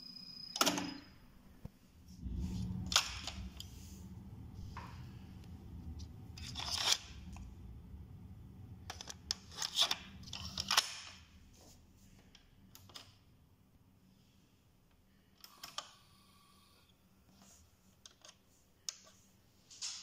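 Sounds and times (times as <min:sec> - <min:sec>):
cassette deck hum: 0:02.2 - 0:11.3.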